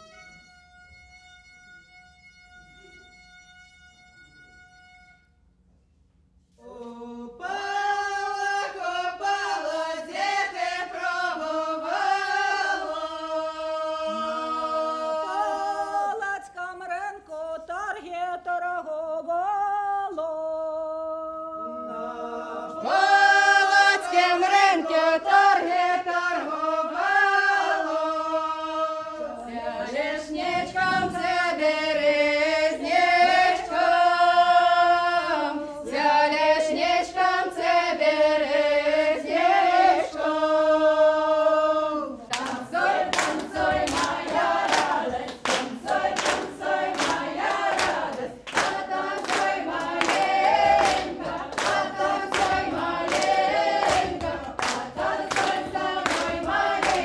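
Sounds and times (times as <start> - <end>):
group of women singing: 6.6 - 57.0
rhythmic hand clapping: 42.3 - 57.0.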